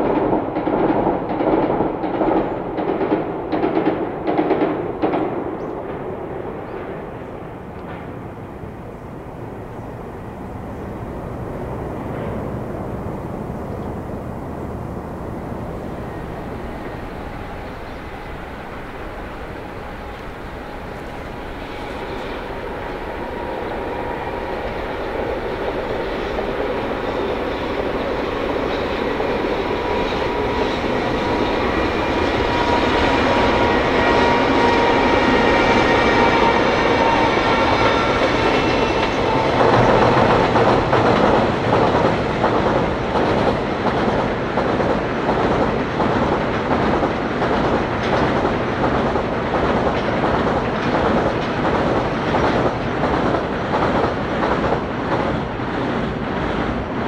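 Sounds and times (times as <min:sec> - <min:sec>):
locomotive whine: 0:05.6 - 0:45.1.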